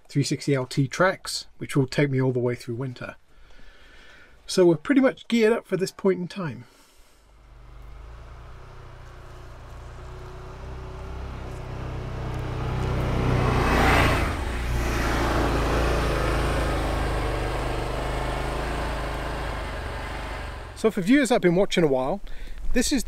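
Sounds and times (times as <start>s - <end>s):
snow track noise: 6.7s - 21.6s
vehicle engine running: 7.2s - 21.0s.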